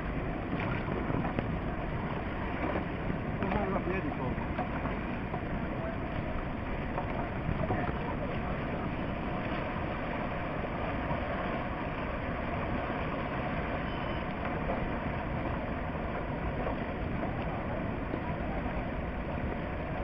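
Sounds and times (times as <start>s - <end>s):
fast-flowing whitewater rushing: 0.0s - 20.0s.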